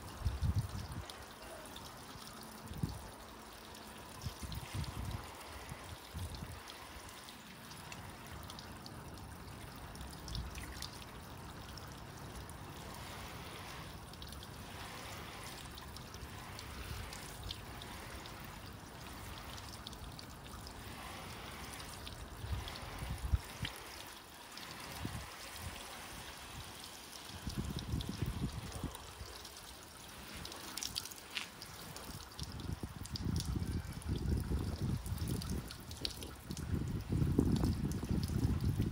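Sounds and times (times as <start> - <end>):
water splashing on car: 0.0 - 38.9
hose spray hissing: 4.0 - 8.5, 12.1 - 32.1.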